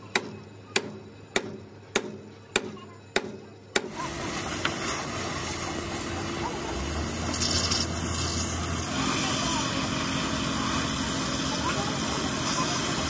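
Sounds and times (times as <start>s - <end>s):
gas torch hissing: 3.9s - 13.0s.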